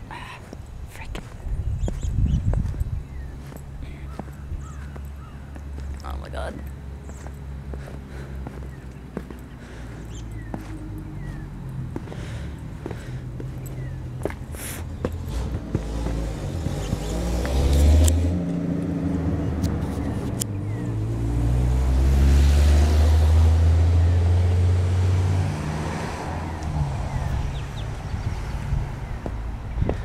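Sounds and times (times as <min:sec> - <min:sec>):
car driving past: 0:06.7 - 0:29.6.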